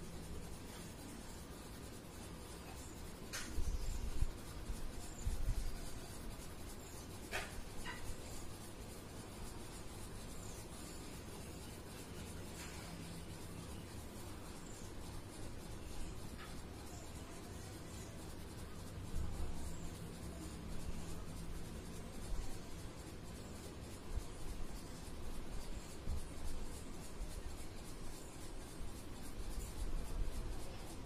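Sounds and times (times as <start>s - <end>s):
crayon scratching on paper: 0.0s - 31.0s.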